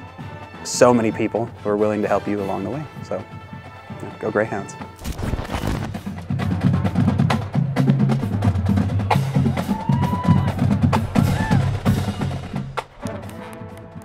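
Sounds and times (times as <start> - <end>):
percussion-heavy music: 4.8 - 14.0.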